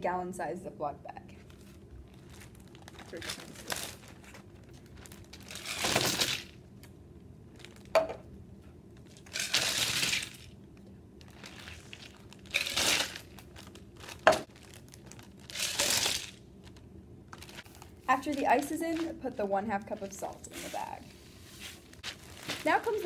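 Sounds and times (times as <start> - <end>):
plastic bag crinkling: 1.4 - 6.6, 7.5 - 8.0, 9.0 - 19.3, 20.6 - 23.0.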